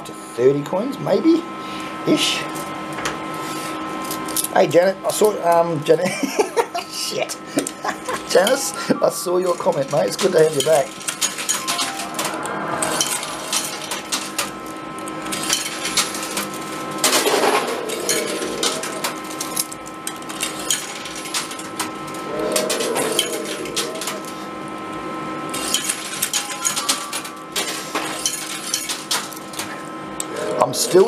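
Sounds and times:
steady background tone: 8.1s - 31.0s
coins clinking and clattering: 9.4s - 12.4s, 15.2s - 21.8s, 25.6s - 29.7s.

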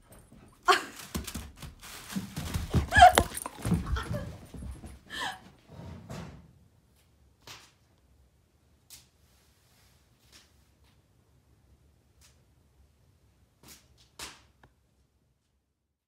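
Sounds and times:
toilet paper rolls tumbling: 0.7s - 5.1s.

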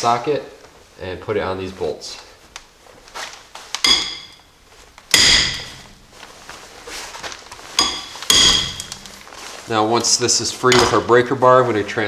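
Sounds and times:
metal tools clanking: 3.8s - 4.5s, 5.1s - 6.0s, 7.8s - 9.1s, 10.7s - 11.2s.

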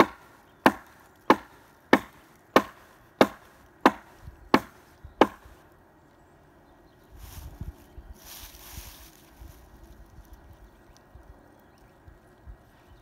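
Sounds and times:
hatchet chopping into tree trunk: 0.0s - 5.5s.

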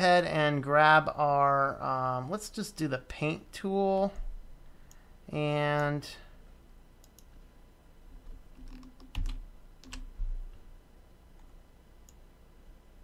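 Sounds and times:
mouse and keyboard clicks: 8.6s - 10.1s.

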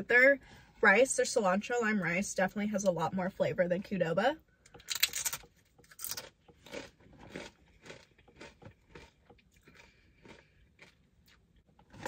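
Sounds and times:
chewing food: 5.7s - 12.0s.

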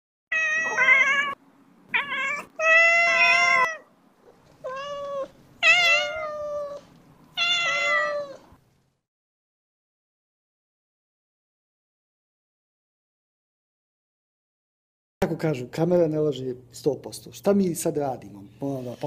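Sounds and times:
cat meowing: 0.3s - 3.9s, 4.6s - 8.5s.

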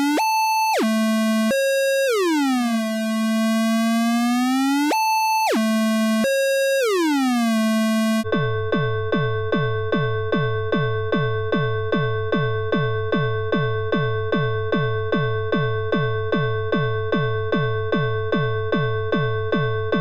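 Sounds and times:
electronic alarm chord: 0.0s - 8.3s.

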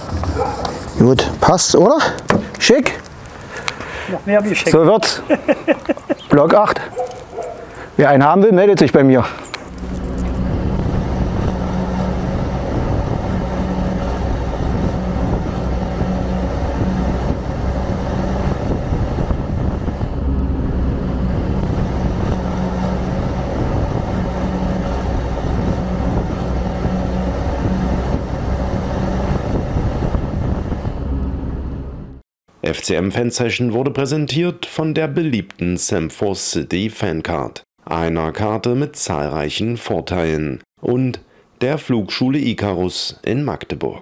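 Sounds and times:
vehicle engine humming while driving: 9.3s - 32.2s.

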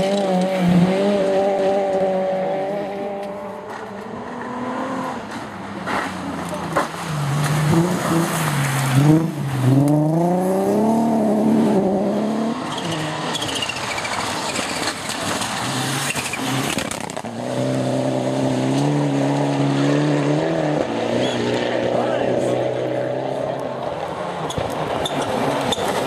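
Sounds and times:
rally car engine revving past: 0.0s - 5.3s, 7.0s - 13.3s, 15.5s - 23.8s.

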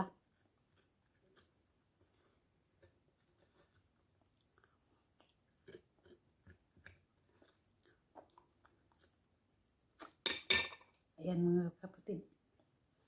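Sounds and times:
person chewing: 0.2s - 10.2s.

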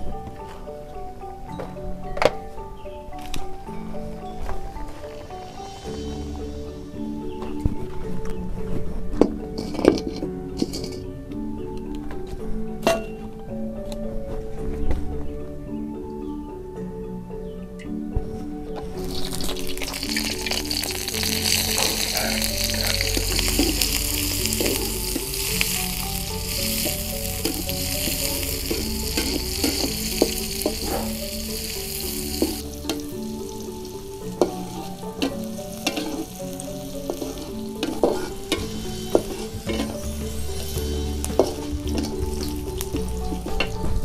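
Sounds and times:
spatula scraping metal wok: 9.6s - 11.0s, 19.0s - 33.2s, 34.3s - 43.8s
food frying in hot oil: 19.0s - 33.0s.

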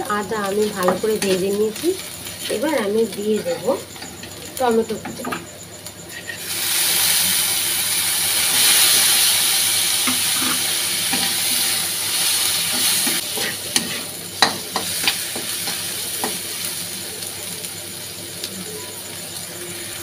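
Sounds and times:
tomatoes sizzling in hot oil: 0.0s - 20.0s
spatula clacking against pan: 12.8s - 16.4s.

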